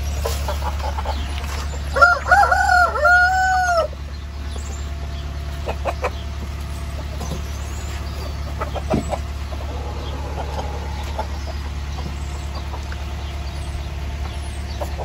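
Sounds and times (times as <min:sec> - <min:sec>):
hens clucking: 0:00.0 - 0:15.0
rooster crowing: 0:01.9 - 0:04.0.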